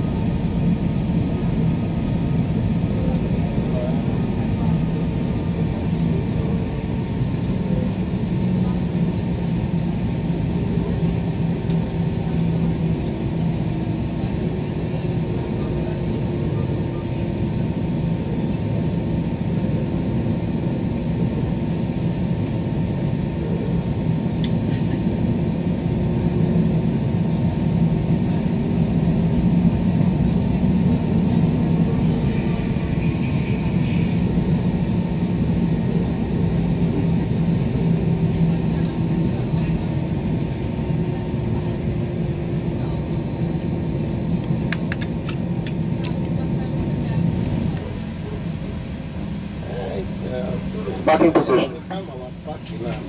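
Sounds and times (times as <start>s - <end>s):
jet engines idling in cabin: 0.0s - 53.0s.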